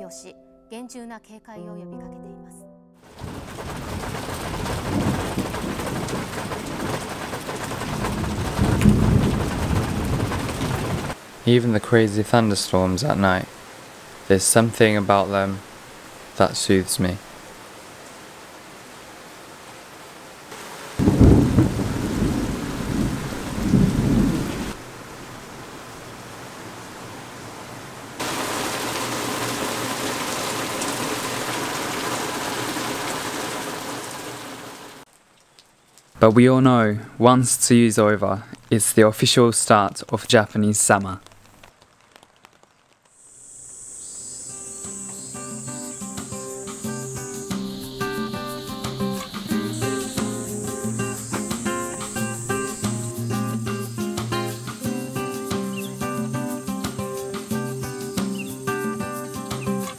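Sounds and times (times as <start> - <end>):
steady rain: 3.0 - 59.9
rolling thunder: 3.1 - 11.2, 21.0 - 24.8.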